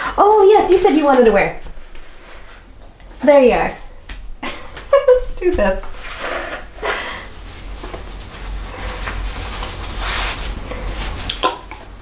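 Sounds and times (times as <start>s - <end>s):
low steady hum: 0.0s - 12.0s
cloth rustling: 4.9s - 11.3s.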